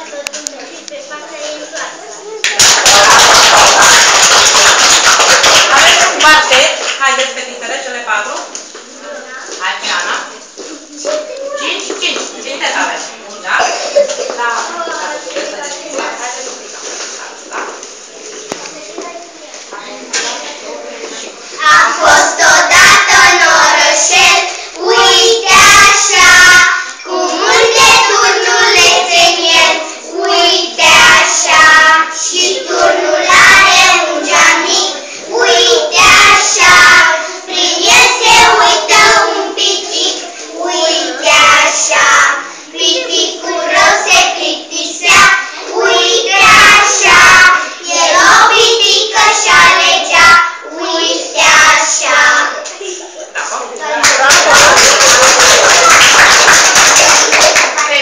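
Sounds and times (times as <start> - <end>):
children singing together: 21.6 - 57.7.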